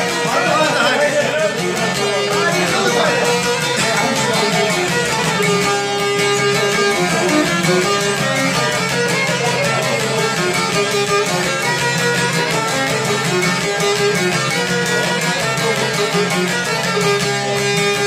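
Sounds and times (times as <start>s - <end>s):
lutes strummed fast: 0.0s - 18.0s
violin melody: 0.0s - 18.0s.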